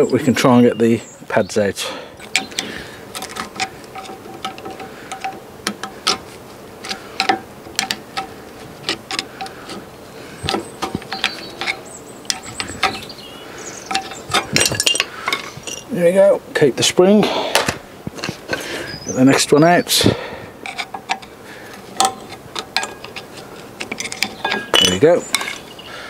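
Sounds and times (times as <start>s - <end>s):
screwdriver scraping metal: 2.2s - 9.8s, 10.4s - 13.1s, 20.6s - 25.8s.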